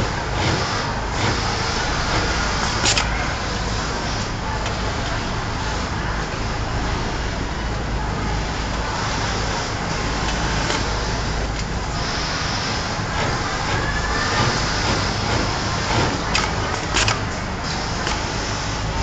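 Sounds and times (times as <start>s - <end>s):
sewing machine running: 0.0s - 3.0s, 12.7s - 17.4s.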